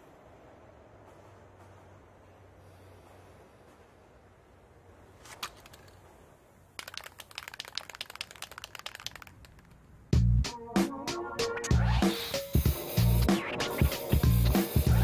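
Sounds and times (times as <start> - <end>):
faint clicks: 5.2 - 10.1
music: 10.1 - 15.0.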